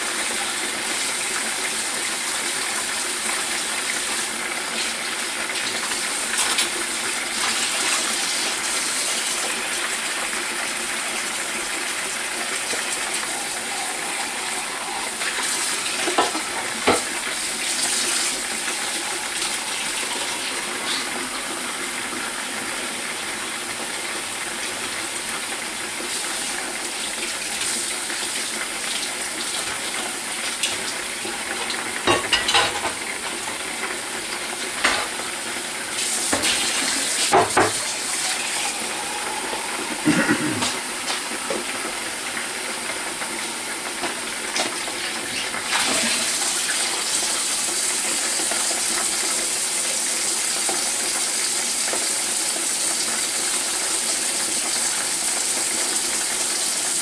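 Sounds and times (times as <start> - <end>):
meat sizzling in hot oil: 0.0 - 57.0.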